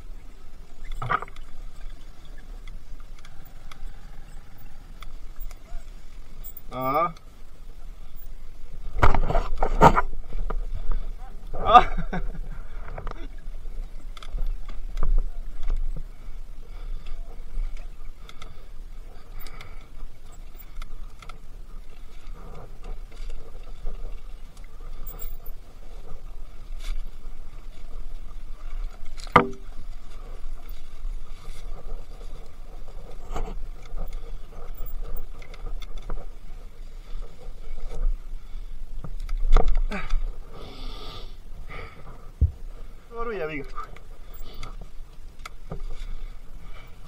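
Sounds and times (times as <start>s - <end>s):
wind buffeting camera: 7.4s - 40.5s.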